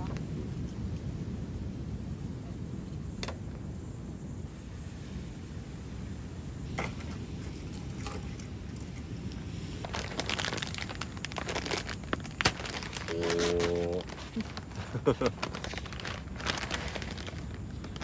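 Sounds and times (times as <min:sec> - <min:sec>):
plastic snack bag crinkling: 0:09.8 - 0:18.0.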